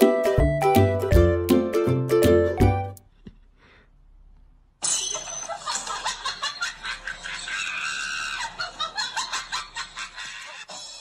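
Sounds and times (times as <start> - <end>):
person laughing hard: 5.5 - 10.7.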